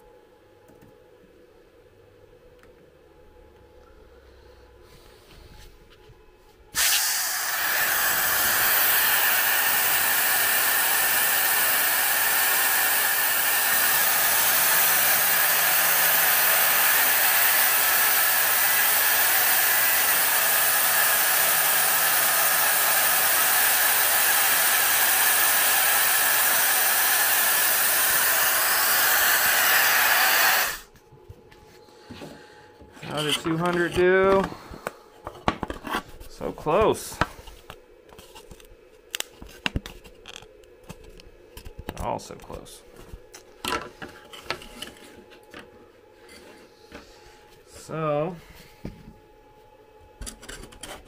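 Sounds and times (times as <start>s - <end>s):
air hissing through nozzle: 6.7s - 30.9s.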